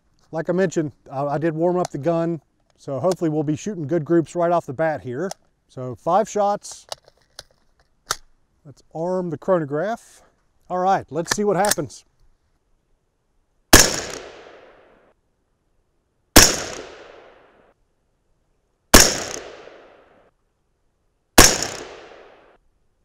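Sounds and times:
gunshot echo: 0:13.7 - 0:14.9, 0:16.4 - 0:17.5, 0:19.0 - 0:20.1, 0:21.4 - 0:22.6
rifle shots: 0:13.7 - 0:14.9, 0:16.4 - 0:17.5, 0:18.9 - 0:20.1, 0:21.4 - 0:22.6.

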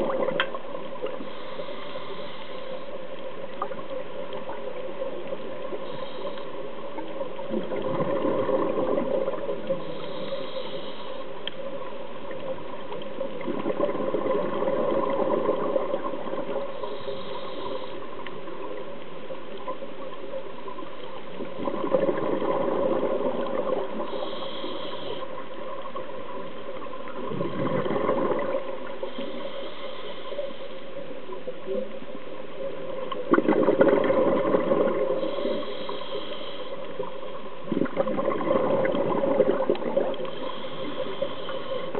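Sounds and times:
exhaled bubbles gushing: 0:00.0 - 0:00.7, 0:07.4 - 0:09.8, 0:13.3 - 0:16.7, 0:21.3 - 0:24.2, 0:26.8 - 0:29.3, 0:33.0 - 0:35.6, 0:37.6 - 0:40.3
steady underwater hum: 0:00.0 - 0:41.9
faint high inhalation hiss: 0:01.0 - 0:04.0, 0:05.6 - 0:07.5, 0:09.3 - 0:13.2, 0:15.7 - 0:21.4, 0:22.9 - 0:27.2, 0:28.5 - 0:33.0, 0:34.9 - 0:37.7, 0:39.9 - 0:41.9.

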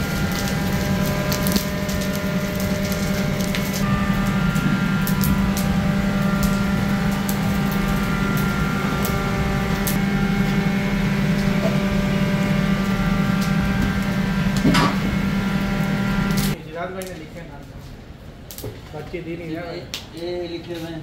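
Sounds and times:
motor humming: 0:00.0 - 0:16.6.

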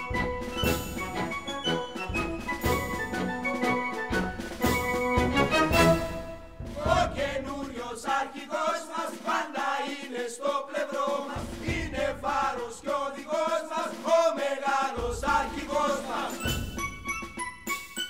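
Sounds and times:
theme music: 0:00.0 - 0:07.6, 0:14.9 - 0:18.0
group of voices chanting: 0:06.7 - 0:16.5.

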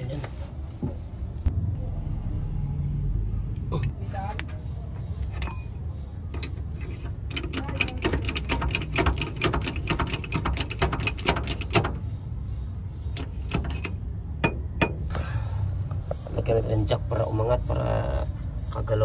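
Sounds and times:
metallic clicking and clunking: 0:05.2 - 0:12.1, 0:13.1 - 0:15.1.

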